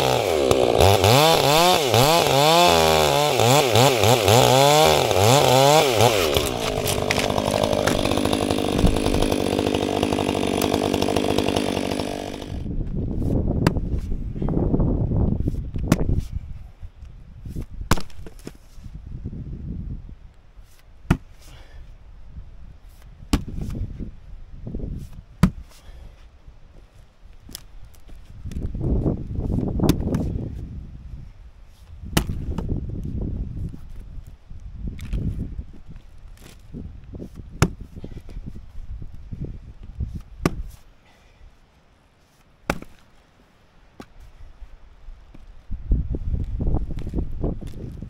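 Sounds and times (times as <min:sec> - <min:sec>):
axe chopping into wood: 0:00.1 - 0:12.6, 0:13.6 - 0:14.1, 0:15.8 - 0:16.2, 0:17.9 - 0:18.6, 0:21.1 - 0:21.6, 0:23.3 - 0:23.8, 0:25.4 - 0:25.8, 0:29.8 - 0:30.3, 0:32.1 - 0:32.7, 0:37.5 - 0:38.3, 0:40.2 - 0:40.8, 0:42.6 - 0:43.1
debris rustling: 0:06.2 - 0:12.6
footsteps in debris: 0:06.4 - 0:08.2.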